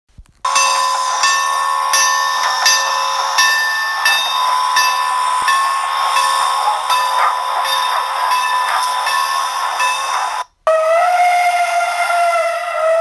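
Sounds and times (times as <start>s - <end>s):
steady hiss: 0.4s - 10.4s
steam locomotive bell ringing: 0.5s - 10.5s.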